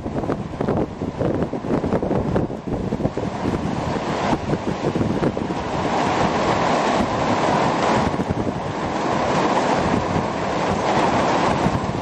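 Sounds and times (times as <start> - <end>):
torrential rain pouring on street: 0.0 - 12.0
wind buffeting microphone: 0.0 - 12.0.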